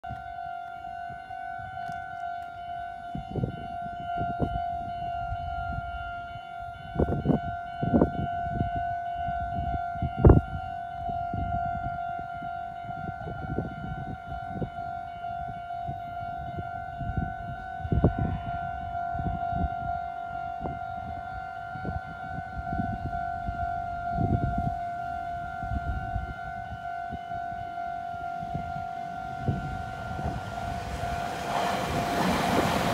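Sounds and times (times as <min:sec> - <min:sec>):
level crossing alarm tone: 0:00.1 - 0:32.9.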